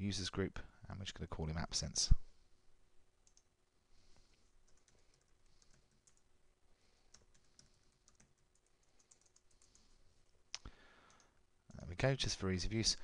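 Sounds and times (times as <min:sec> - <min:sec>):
keyboard typing: 0:03.2 - 0:03.5, 0:04.6 - 0:06.3, 0:07.1 - 0:09.9.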